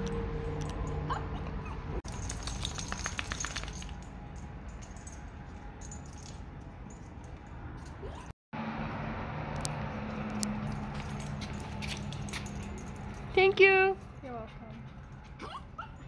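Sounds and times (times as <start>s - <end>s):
quick run of clicks: 2.1s - 4.0s.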